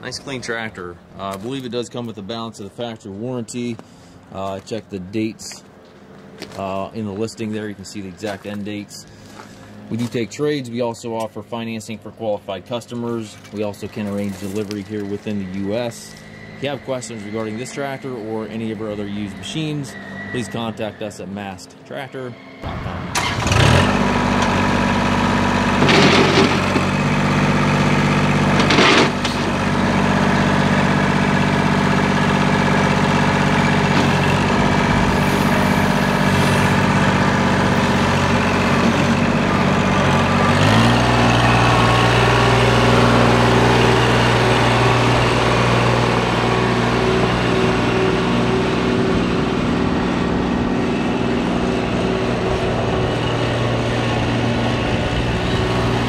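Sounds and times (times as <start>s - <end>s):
tractor diesel engine running: 0.0s - 21.8s, 22.6s - 56.0s.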